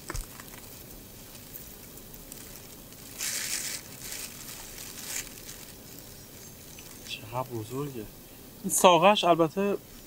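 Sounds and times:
plastic bag crinkling: 2.2 - 6.1.

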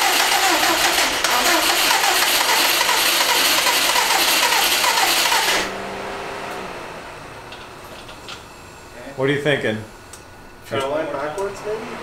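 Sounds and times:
starter motor cranking engine: 0.0 - 5.7.

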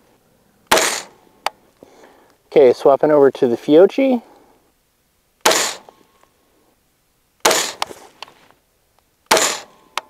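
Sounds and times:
rifle shots echoing: 5.4 - 5.9, 7.4 - 7.9, 9.3 - 9.8.

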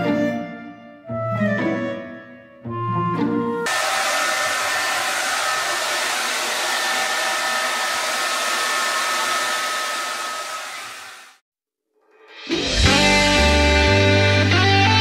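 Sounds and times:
hair dryer blowing: 3.7 - 11.4.

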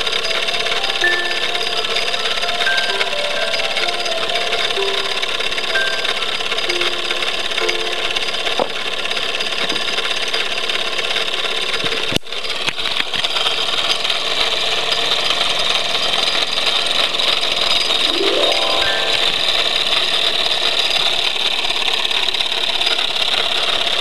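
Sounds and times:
organ notes: 0.1 - 8.6, 18.1 - 20.0.

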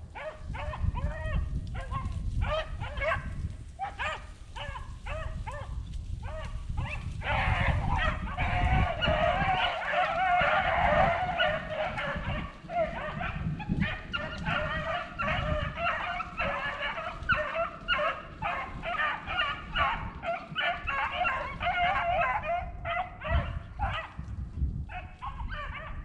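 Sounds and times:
wind on microphone: 0.0 - 26.0
dogs baying: 0.1 - 24.2, 24.9 - 26.0.

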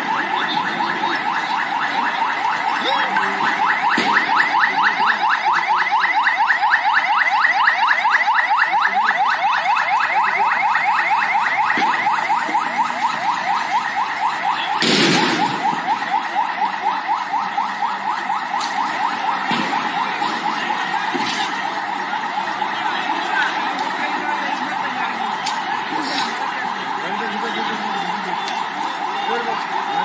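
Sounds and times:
electronic siren wailing: 0.0 - 30.0
sharp bang: 14.8 - 15.7.

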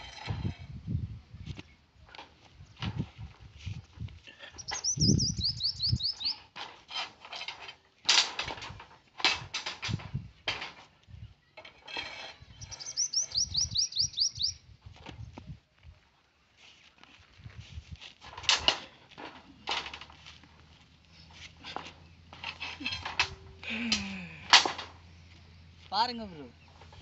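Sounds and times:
bird singing: 4.5 - 6.5, 12.5 - 14.6
metal rebar clanking: 6.3 - 10.9, 11.6 - 13.0, 18.2 - 20.2, 21.3 - 25.1.

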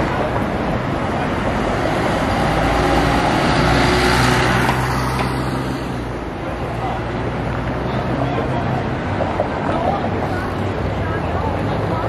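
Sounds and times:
bus driving past: 0.0 - 12.0
street traffic: 0.0 - 12.0
tyres on road: 0.0 - 12.0.

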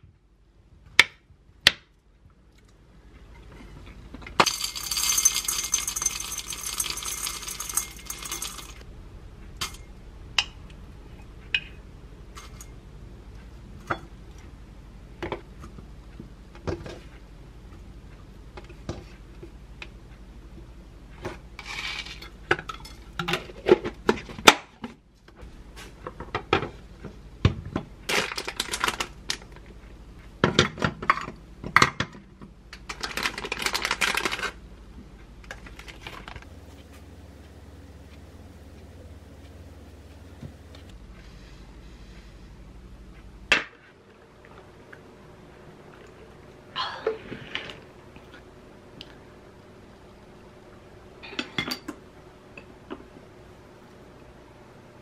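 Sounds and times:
plastic wrapper crinkling: 28.1 - 29.5, 32.9 - 34.6, 35.5 - 36.5.

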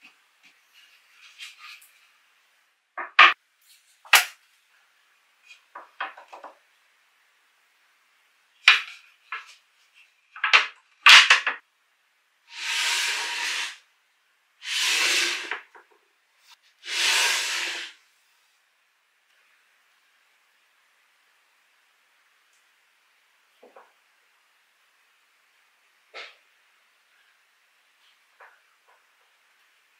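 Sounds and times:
wooden pieces knocking together: 5.6 - 6.6, 10.4 - 11.6
wood rubbing over wood: 12.5 - 13.8, 14.6 - 15.8, 16.8 - 18.0.

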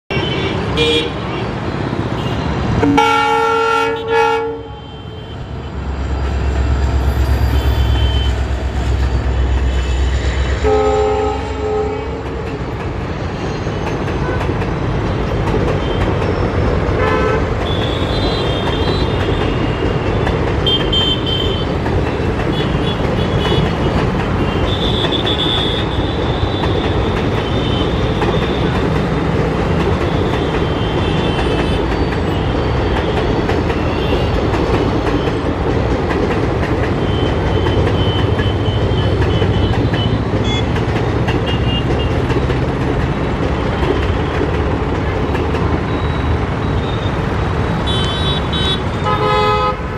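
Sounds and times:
train wheels on rails: 0.1 - 49.9
train horn: 2.2 - 5.5, 7.5 - 12.4, 16.9 - 19.6, 47.8 - 49.9
high wheel squeals: 5.2 - 10.6, 13.2 - 14.1, 45.7 - 47.4.

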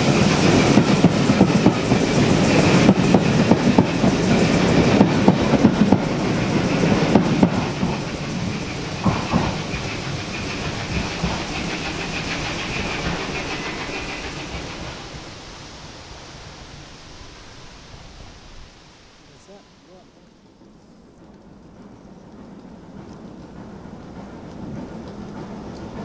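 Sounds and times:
train wheels clacking over rail joints: 0.0 - 15.3, 20.5 - 26.0.

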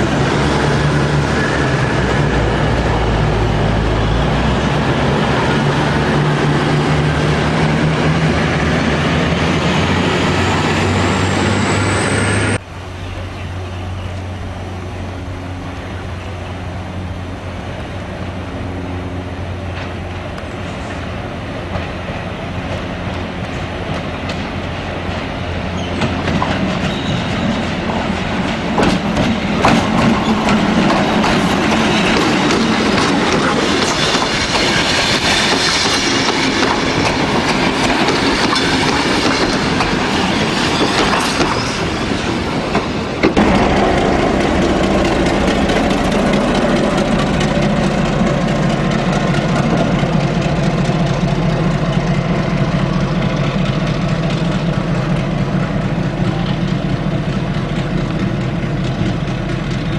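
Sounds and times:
train wheels clickety-clack: 19.7 - 59.9
diesel locomotive idling: 41.8 - 59.9.

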